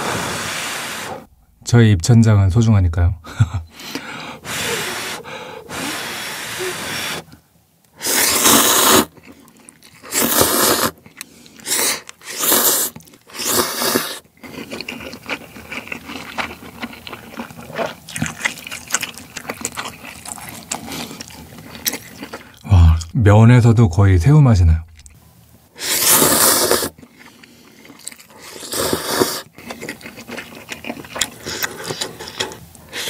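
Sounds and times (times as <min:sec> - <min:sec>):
person slurping noodles: 0:00.0 - 0:01.3, 0:03.9 - 0:07.3, 0:08.0 - 0:16.4, 0:25.8 - 0:33.0
wet chewing with mouth clicks: 0:08.3 - 0:23.2, 0:24.9 - 0:25.2, 0:26.0 - 0:33.0.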